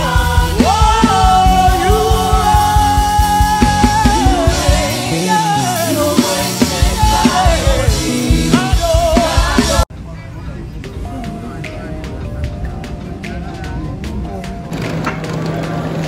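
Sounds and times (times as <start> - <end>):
band with steady drum beat: 0.0 - 9.9
person singing: 0.0 - 9.9.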